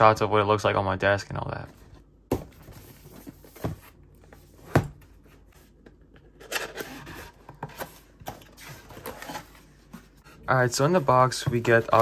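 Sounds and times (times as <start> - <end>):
cardboard scraping and sliding: 6.6 - 12.0.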